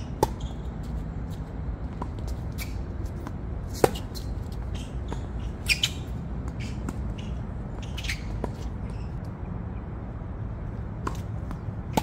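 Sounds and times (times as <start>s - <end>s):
racket hitting ball: 1.9s - 8.9s, 11.0s - 12.0s.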